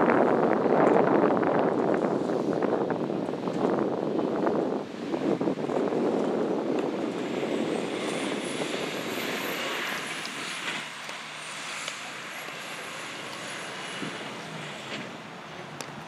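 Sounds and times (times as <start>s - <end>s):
truck engine and tyre noise: 0.0s - 16.0s
faint high whine: 4.5s - 15.8s.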